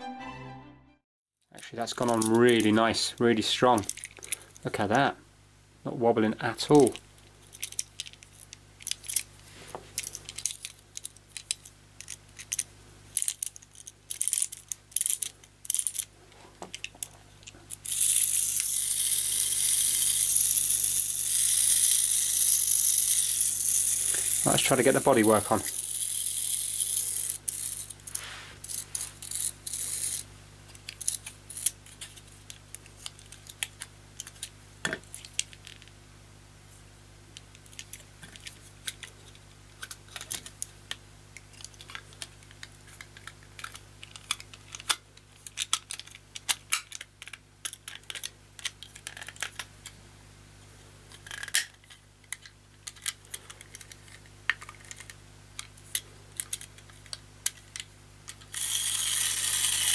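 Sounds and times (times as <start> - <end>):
toy car shell clicking: 17.8 - 24.5, 41.6 - 49.7, 51.2 - 59.9.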